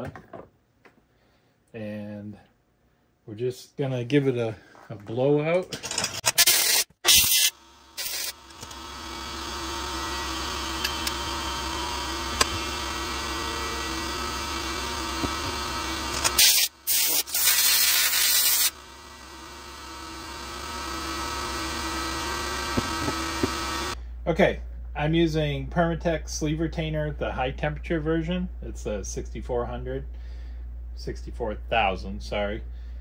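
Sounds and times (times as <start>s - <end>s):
steady motor hum: 6.6s - 33.0s
compressed air blasts: 16.3s - 18.7s.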